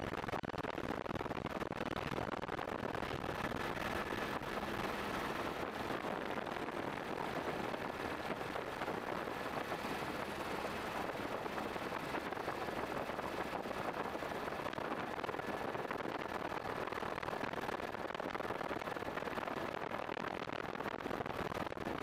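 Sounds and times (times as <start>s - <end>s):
faint thin whine: 3.1s - 20.4s
helicopter rushing noise: 3.4s - 17.1s.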